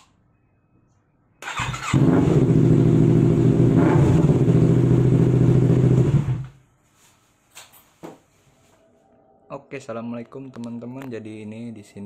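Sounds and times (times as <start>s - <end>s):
motorcycle engine running: 1.9s - 6.4s.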